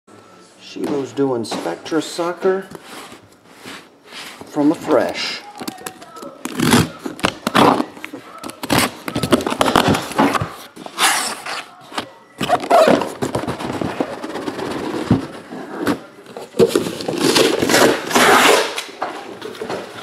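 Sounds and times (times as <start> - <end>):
boxes scraping against cardboard: 2.7 - 5.2, 8.6 - 16.1, 16.7 - 18.8
boxes knocking down: 16.6 - 18.8.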